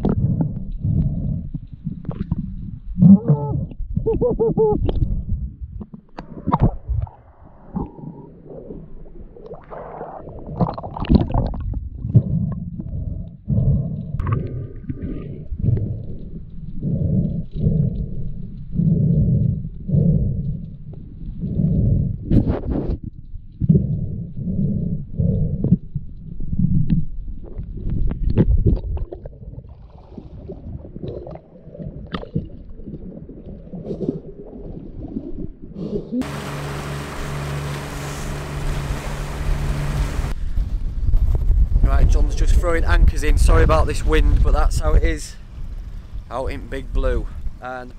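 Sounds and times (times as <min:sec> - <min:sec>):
underwater splashing: 0:00.0 - 0:41.7
underwater gurgling and sloshing: 0:00.0 - 0:47.9
water sloshing against hull: 0:25.0 - 0:40.8.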